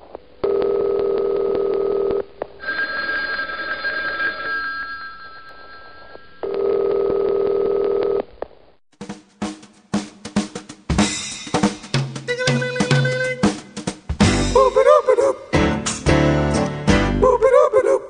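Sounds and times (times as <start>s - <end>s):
telephone ringing: 0.5s - 8.2s
drum hits: 9.0s - 14.8s.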